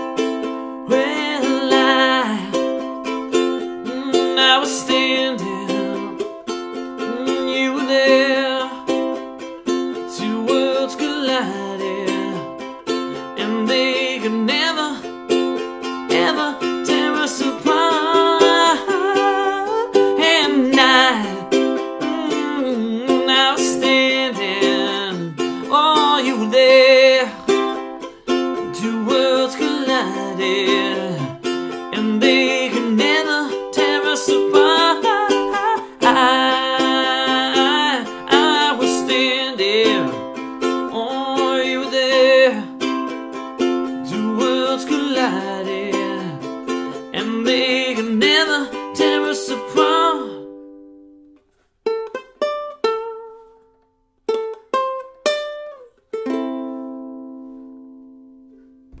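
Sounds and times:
ukulele strumming: 0:00.0 - 0:59.0
person singing wordless notes: 0:16.1 - 0:42.8.

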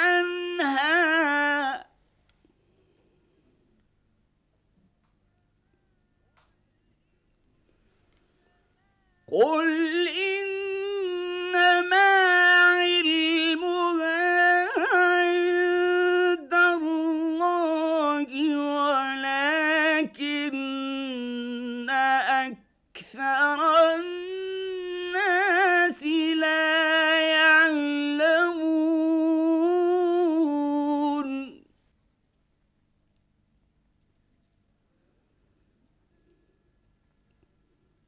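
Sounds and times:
man reciting melodically: 0:00.0 - 0:02.0, 0:08.3 - 0:31.7.

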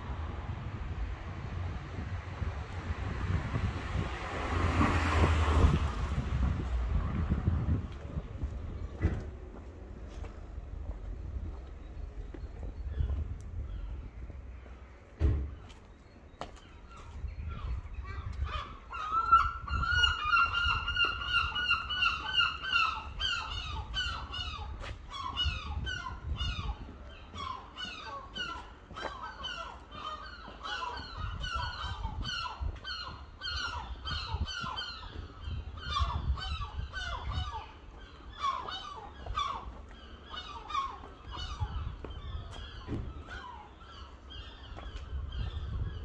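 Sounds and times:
low rumble: 0:00.0 - 0:15.6
large birds honking: 0:18.1 - 0:44.9.

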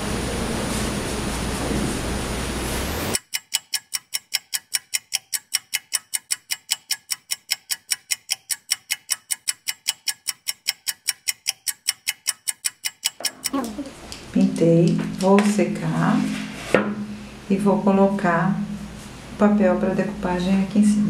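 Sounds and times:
fast clock ticking: 0:03.2 - 0:13.8.

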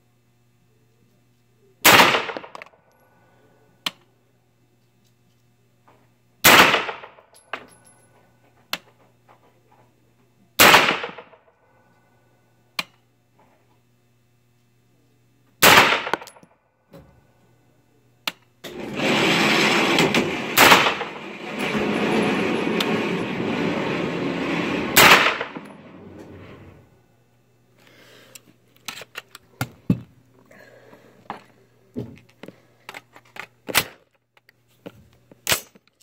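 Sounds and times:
loud gunshots with echo: 0:01.9 - 0:02.6, 0:06.5 - 0:07.1, 0:10.6 - 0:11.3, 0:15.6 - 0:16.2, 0:19.9 - 0:21.2, 0:24.9 - 0:25.6.

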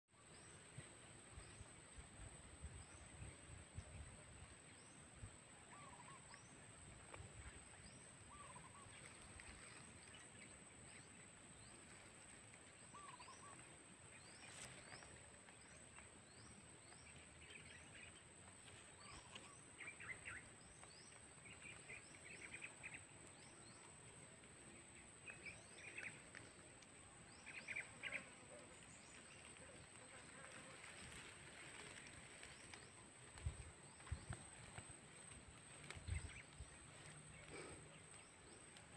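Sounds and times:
birds chirping: 0:04.3 - 0:38.9.

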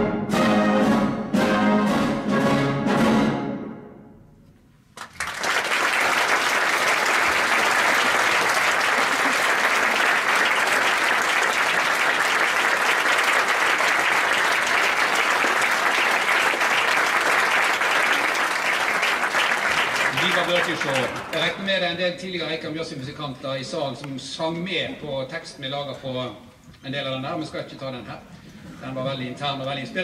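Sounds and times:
brass band playing chords: 0:00.0 - 0:04.1
audience applauding: 0:05.0 - 0:21.7.

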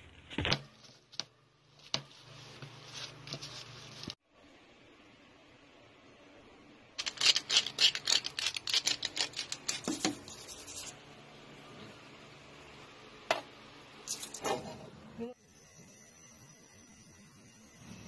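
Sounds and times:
seasoning shaker rattling: 0:07.0 - 0:10.9, 0:14.1 - 0:14.4.

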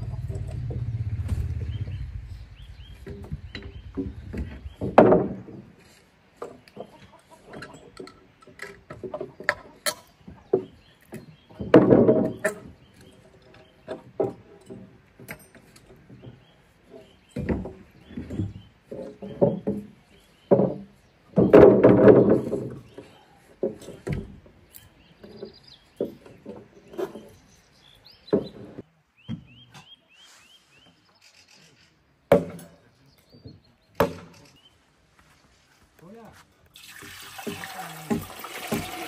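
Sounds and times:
knocks and scrapes: 0:00.0 - 0:27.6, 0:28.2 - 0:29.9.

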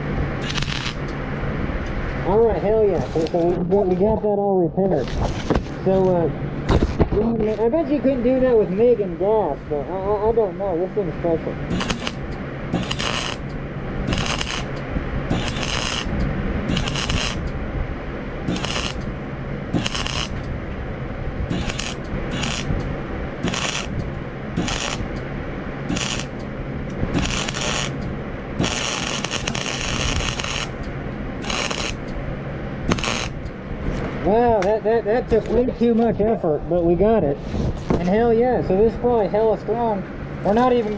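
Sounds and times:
welding arc crackling: 0:00.0 - 0:01.3, 0:11.6 - 0:17.6, 0:18.4 - 0:33.8
steady low hum: 0:00.0 - 0:40.9.

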